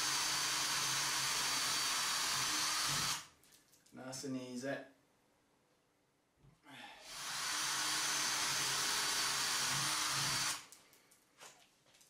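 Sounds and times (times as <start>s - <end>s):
cordless drill drilling: 0.0s - 3.3s, 7.0s - 10.7s.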